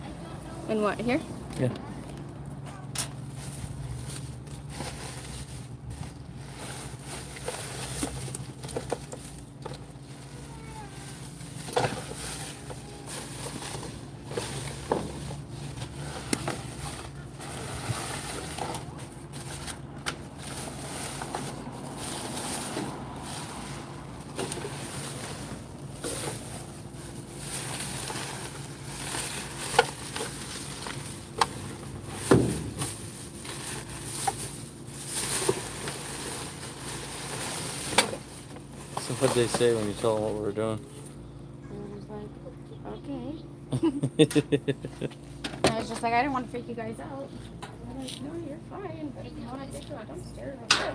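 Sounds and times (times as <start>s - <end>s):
plastic bags rustling and crinkling: 2.8s - 41.0s.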